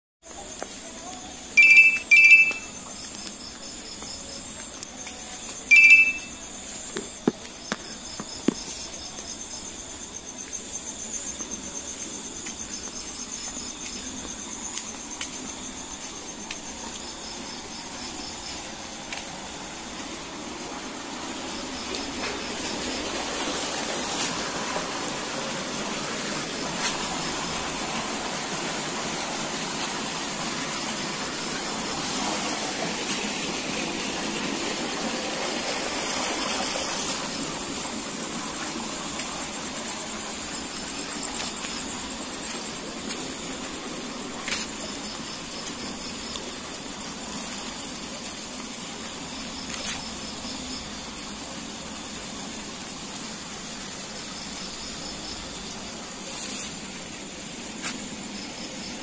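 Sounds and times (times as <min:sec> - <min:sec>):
crickets chirping: 0:00.2 - 0:59.0
loud high-pitched chirps: 0:01.6 - 0:02.8, 0:05.7 - 0:06.4
broad hiss: 0:17.4 - 0:59.0.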